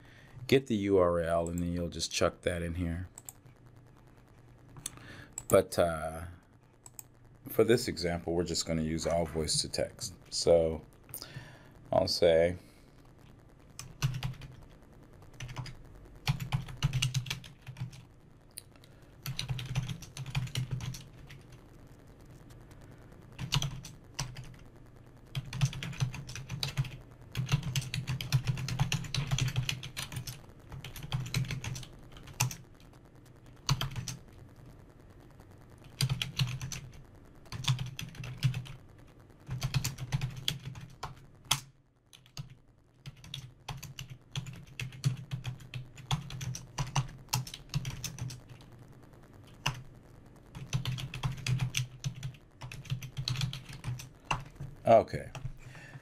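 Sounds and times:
typing on computer keyboard: 13.8s - 14.6s, 15.4s - 18.0s, 19.2s - 21.5s, 23.4s - 24.6s, 25.3s - 32.6s, 33.6s - 34.2s, 35.9s - 38.8s, 39.5s - 48.7s, 49.6s - 49.8s, 50.5s - 54.6s.

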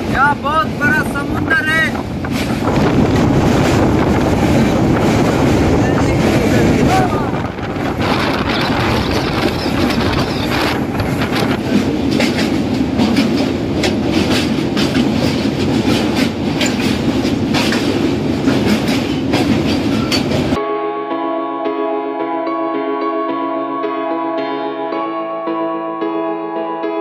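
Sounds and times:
train wheels rumbling on rails: 0.0s - 20.6s
ambient background music: 20.6s - 27.0s.

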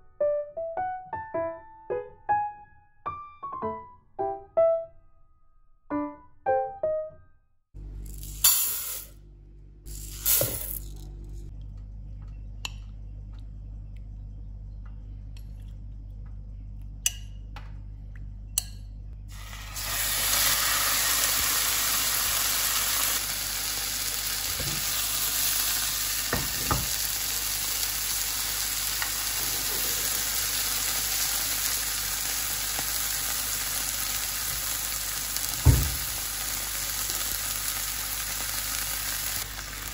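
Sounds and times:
low steady hum: 7.8s - 22.5s
chicken sizzling in frying pan: 19.3s - 39.9s.

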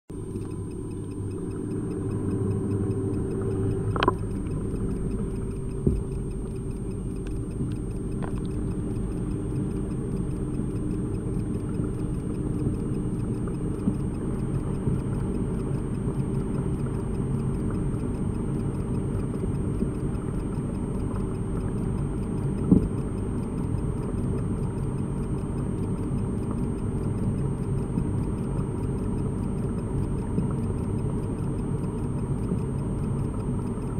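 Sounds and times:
sharp clicks: 0.1s - 26.6s
low mechanical hum: 0.1s - 33.9s.

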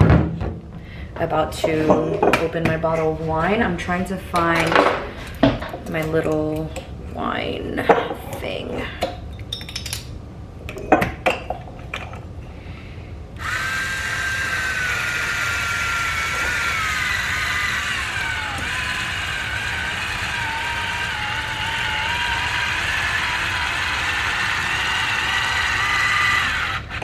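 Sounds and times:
electric wine opener motor whine: 13.4s - 27.0s.

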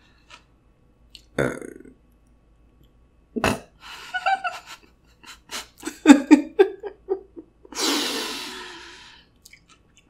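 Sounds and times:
woman laughing: 3.9s - 8.8s.

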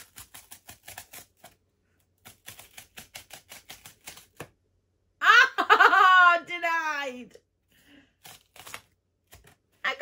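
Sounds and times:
cardboard tear strip ripping: 0.0s - 1.6s, 2.2s - 4.5s, 8.2s - 9.6s.

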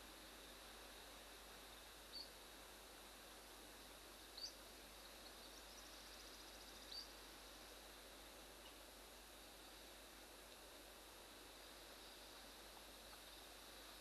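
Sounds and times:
faint outdoor hiss: 0.0s - 14.0s.

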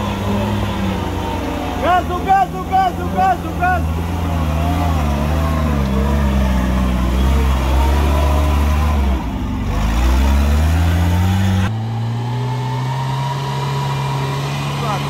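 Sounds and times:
off-road vehicle engine revving: 0.0s - 15.0s.

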